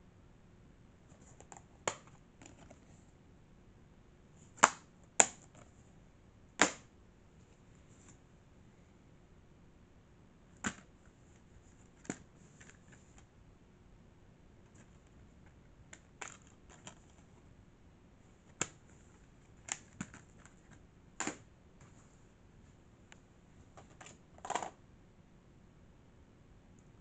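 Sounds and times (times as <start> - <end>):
plastic cases clicking: 15.9 - 17.2, 19.7 - 20.6.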